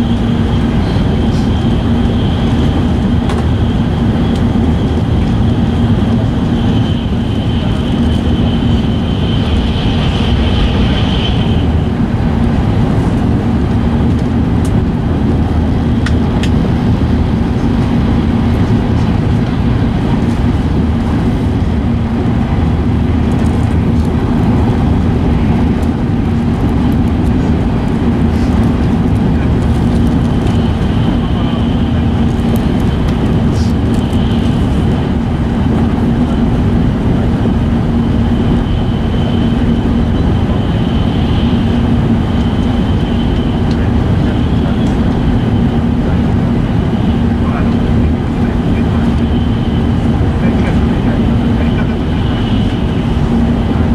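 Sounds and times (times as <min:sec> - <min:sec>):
train running rumble and rush: 0:00.0 - 0:53.9
high thin whine: 0:06.6 - 0:12.3.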